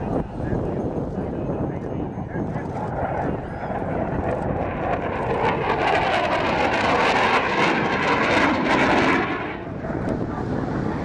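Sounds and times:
jet roaring past: 2.8s - 11.0s.

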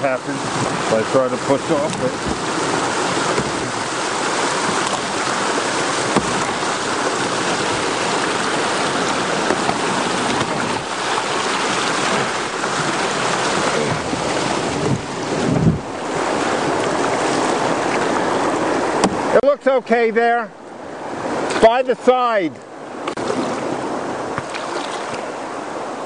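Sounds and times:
white water rushing over dam: 0.0s - 26.0s
faint knocks against boat: 1.7s - 3.9s, 6.0s - 6.8s, 9.0s - 15.8s, 16.8s - 19.3s, 24.3s - 25.2s.

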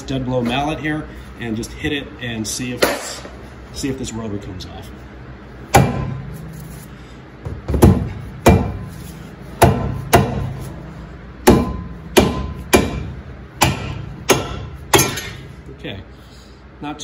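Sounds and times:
mallet striking metal rotor: 11.4s - 15.4s.

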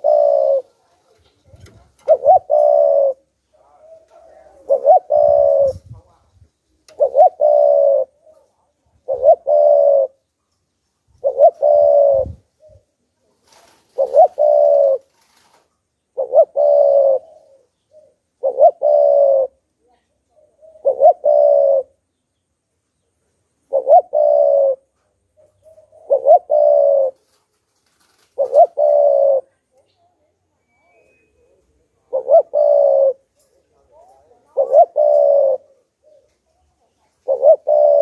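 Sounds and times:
dove cooing: 0.0s - 6.2s, 6.9s - 10.2s, 11.2s - 12.9s, 13.5s - 15.5s, 16.1s - 19.7s, 20.3s - 22.0s, 23.7s - 27.4s, 28.0s - 29.7s, 30.7s - 38.0s.

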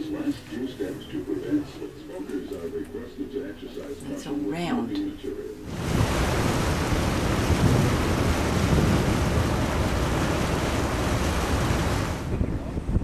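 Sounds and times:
rushing water: 5.6s - 12.4s
low rumble: 5.7s - 13.0s
wind buffeting microphone: 5.7s - 13.0s.

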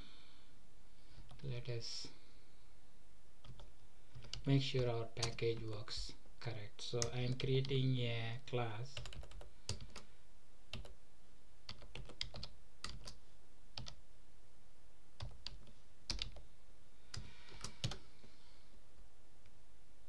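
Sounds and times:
keyboard typing: 3.4s - 4.5s, 9.0s - 10.1s, 10.7s - 11.0s, 11.7s - 13.2s, 13.8s - 14.0s, 15.2s - 16.4s, 17.1s - 18.0s.

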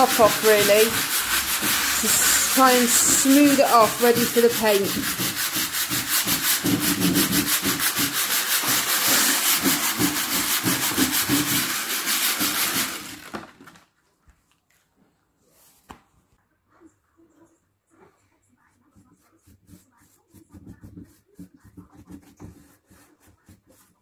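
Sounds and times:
sandpaper rubbing on wood: 0.0s - 13.3s.

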